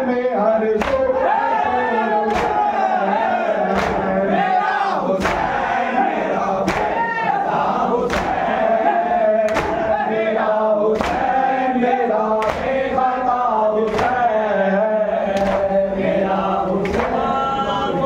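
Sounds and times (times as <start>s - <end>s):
men chanting in unison: 0.0s - 18.0s
hands slapping chests: 0.8s - 1.1s, 2.3s - 2.7s, 3.7s - 4.1s, 5.2s - 5.6s, 6.6s - 7.0s, 8.1s - 8.4s, 9.4s - 9.9s, 11.0s - 11.3s, 12.4s - 12.8s, 13.9s - 14.2s, 15.3s - 15.7s, 16.8s - 17.2s.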